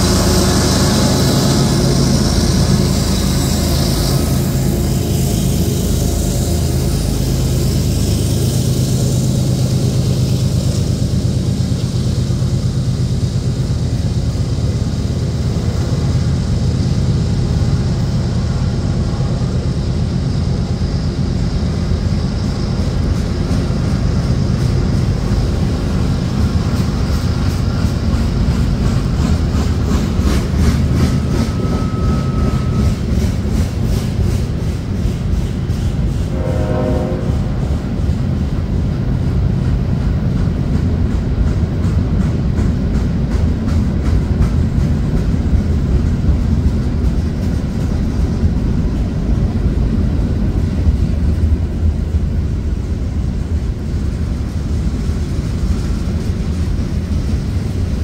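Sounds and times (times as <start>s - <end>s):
freight train low rumble: 0.0s - 58.0s
thin squeal: 31.2s - 33.1s.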